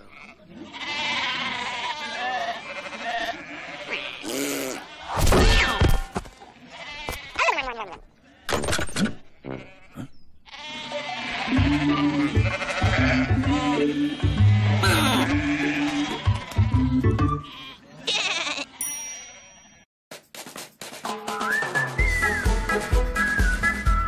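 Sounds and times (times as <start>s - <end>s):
cartoon sheep bleating: 0.1s - 5.8s, 9.4s - 18.8s
music: 11.5s - 17.5s, 20.5s - 24.0s.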